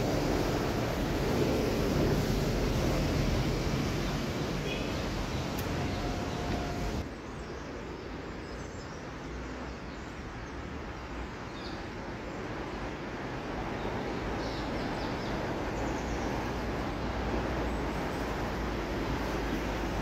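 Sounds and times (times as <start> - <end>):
road traffic: 0.0 - 20.0
wind: 0.0 - 20.0.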